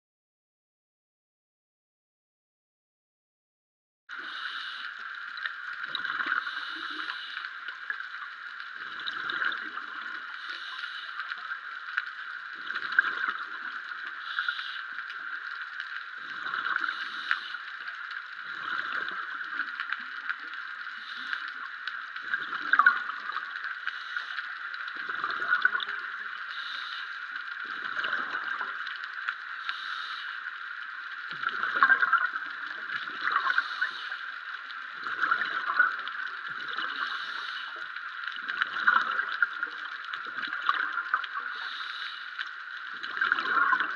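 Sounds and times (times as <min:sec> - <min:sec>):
steady underwater hiss: 0:04.1 - 0:43.9
diver's bubbles gurgling: 0:05.3 - 0:24.0, 0:24.8 - 0:26.8, 0:27.6 - 0:29.4, 0:31.2 - 0:41.9, 0:42.5 - 0:43.9.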